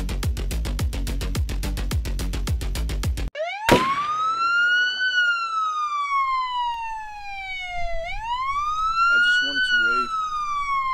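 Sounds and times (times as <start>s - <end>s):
wailing siren: 3.3s - 10.9s.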